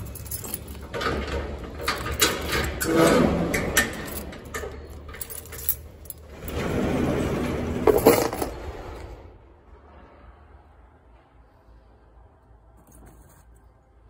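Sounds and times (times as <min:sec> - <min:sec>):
keys jangling: 0:00.0 - 0:02.8, 0:03.5 - 0:06.4.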